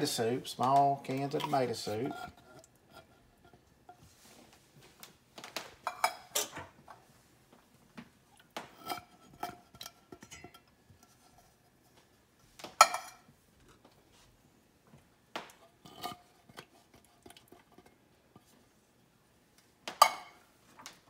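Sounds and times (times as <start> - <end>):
metal cans clinking against pot: 0.6 - 3.6, 8.7 - 11.2.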